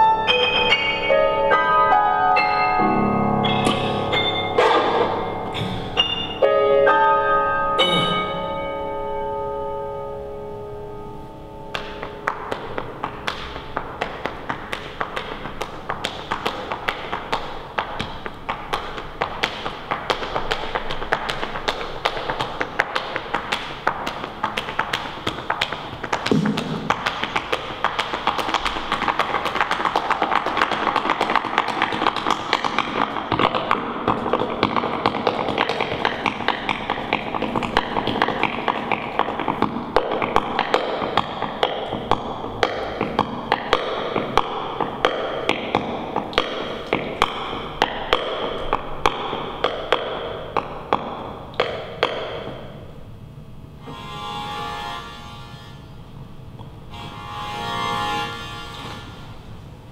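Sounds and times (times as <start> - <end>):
live keyboard music: 0.0 - 15.8, 53.8 - 55.9, 56.8 - 59.3
flamenco footwork taps: 3.5 - 6.4, 11.7 - 52.8.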